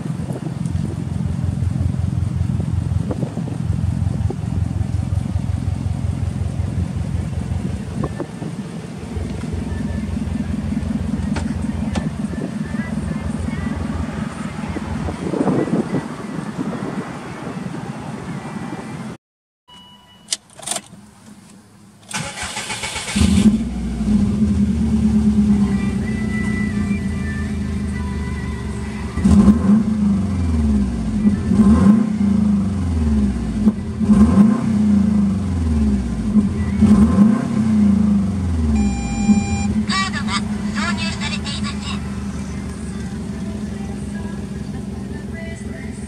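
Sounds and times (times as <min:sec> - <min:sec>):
car engine idling: 0:00.0 - 0:18.4, 0:20.9 - 0:46.0
short chime: 0:19.7 - 0:20.4.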